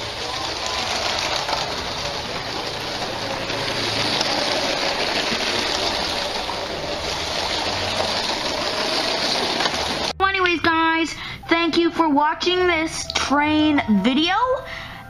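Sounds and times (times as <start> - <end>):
toy train motor whirring: 0.0 - 10.1.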